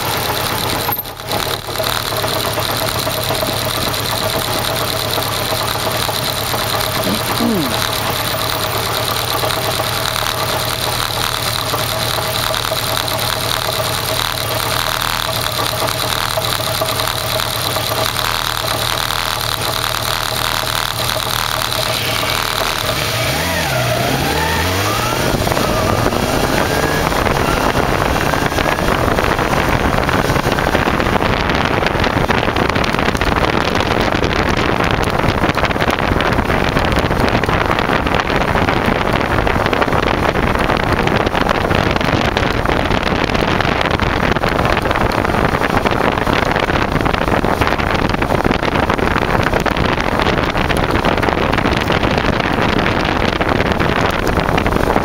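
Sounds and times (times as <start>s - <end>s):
motorcycle engine revving: 0.0s - 55.0s
wind rushing over microphone: 23.0s - 55.0s.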